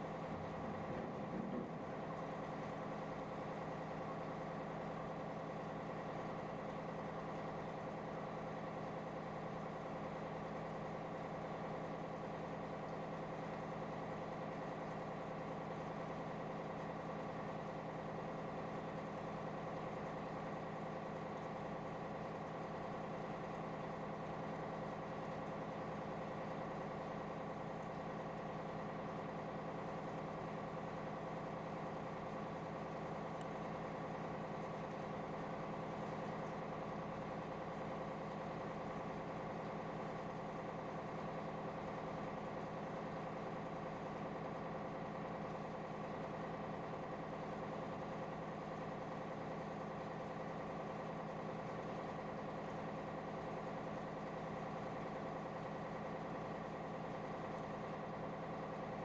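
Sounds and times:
ship diesel engine drone: 0.0s - 5.7s.

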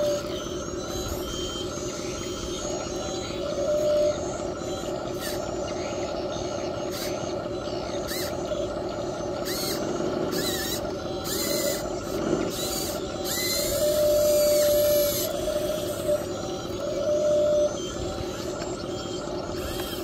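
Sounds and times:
short high motor whines: 0.0s - 20.0s
small electric gear motors whirring: 0.0s - 20.0s.

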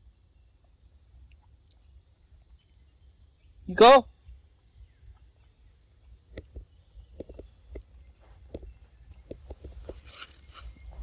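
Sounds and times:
insects chirring: 0.0s - 11.0s
soft crackles and taps: 6.3s - 11.0s.

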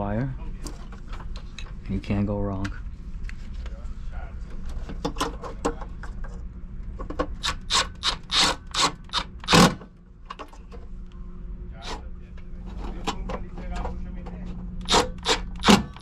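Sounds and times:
steady low hum: 0.0s - 16.0s
screwdriver turning screws in metal: 7.4s - 9.7s, 14.8s - 16.0s.

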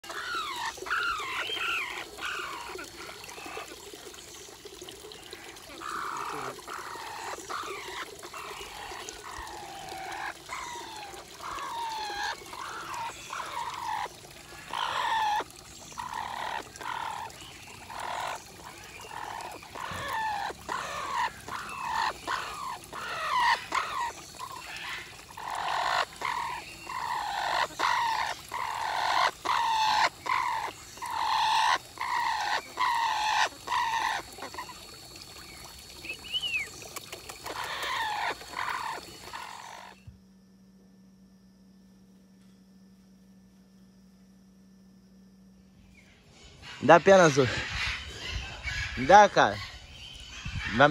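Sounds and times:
parrot calling: 0.0s - 3.7s, 5.8s - 34.8s, 37.4s - 40.1s, 46.5s - 50.9s.

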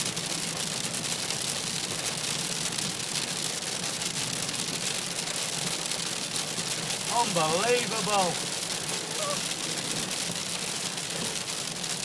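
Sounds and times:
rain and hail on car roof: 0.0s - 12.0s
low road hum: 3.8s - 12.0s.

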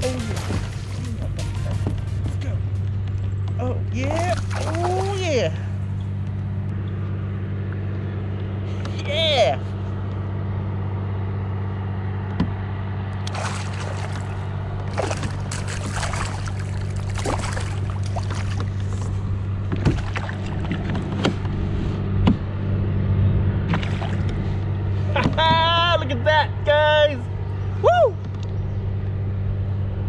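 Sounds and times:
water splashes: 0.0s - 2.2s, 4.0s - 5.8s, 13.2s - 21.4s, 23.7s - 24.5s
steady low hum: 0.0s - 30.0s.

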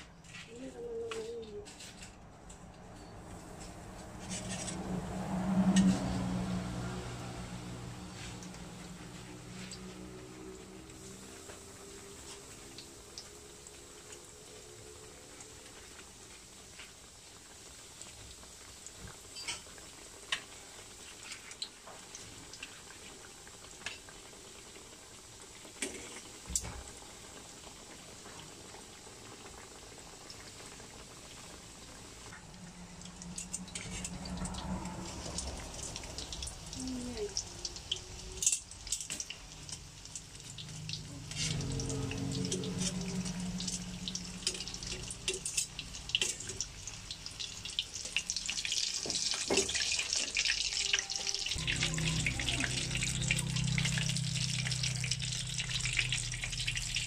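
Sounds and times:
oil sizzling deep-frying: 0.0s - 57.0s
low hum: 40.6s - 45.2s, 51.5s - 57.0s.

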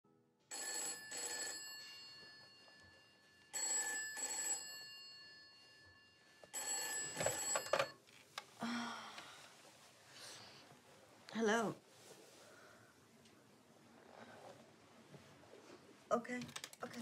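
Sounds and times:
telephone bell ringing: 0.5s - 8.0s.

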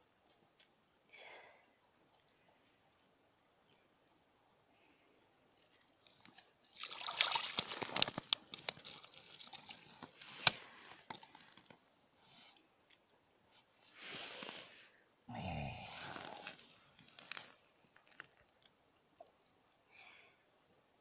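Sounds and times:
fish slapping on ice: 6.8s - 10.6s
ice chips and slush crunching: 6.8s - 11.0s.

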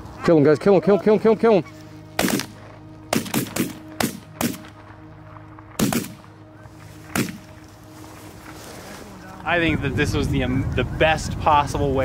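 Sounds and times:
steady background music: 0.0s - 12.0s
shotgun blasts: 2.2s - 4.7s, 5.8s - 6.2s, 7.1s - 7.4s.

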